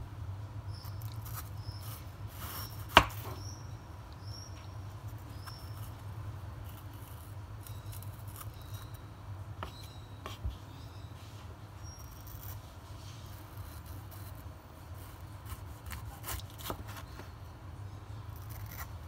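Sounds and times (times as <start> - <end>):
knife cutting tomato on board: 0.7 - 3.5, 9.6 - 10.6, 15.0 - 17.4, 18.4 - 19.0.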